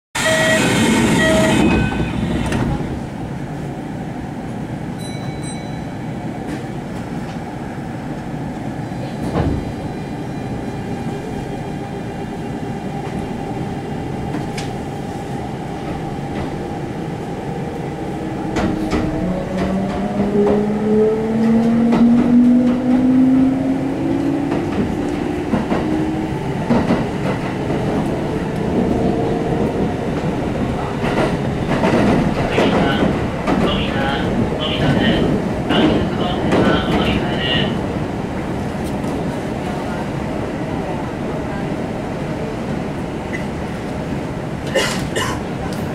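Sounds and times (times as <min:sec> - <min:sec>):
train inverter whine rising: 0:00.2 - 0:02.6
electric train hum: 0:00.2 - 0:45.9
train running noise: 0:00.2 - 0:45.9.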